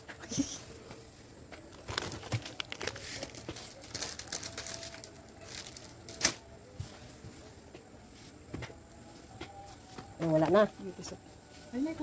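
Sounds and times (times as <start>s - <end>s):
hand rummaging in cardboard box: 1.6s - 5.9s
plastic packaging crinkling: 1.7s - 6.4s.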